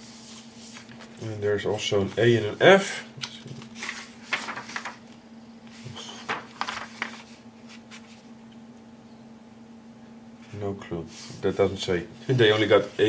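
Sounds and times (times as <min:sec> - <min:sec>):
faint steady hum: 0:00.0 - 0:13.0
paper rustling and crinkling: 0:00.1 - 0:08.3, 0:12.2 - 0:13.0.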